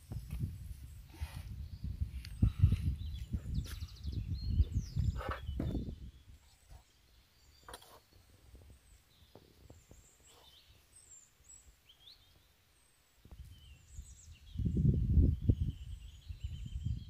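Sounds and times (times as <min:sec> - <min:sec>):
wind rumbling on microphone: 0:00.0 - 0:06.9, 0:08.1 - 0:10.7, 0:13.2 - 0:17.0
faint bird chirps: 0:00.9 - 0:17.0.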